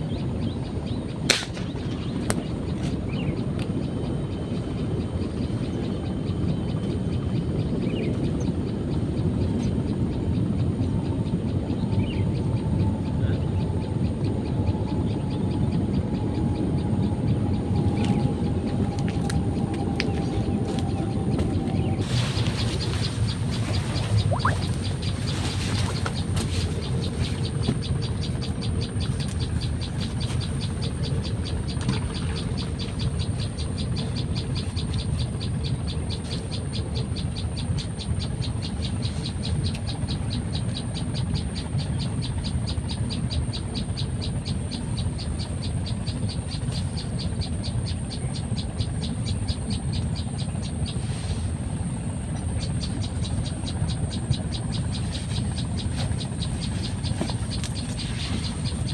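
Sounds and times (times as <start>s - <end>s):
low rumble: 16.0s - 27.7s.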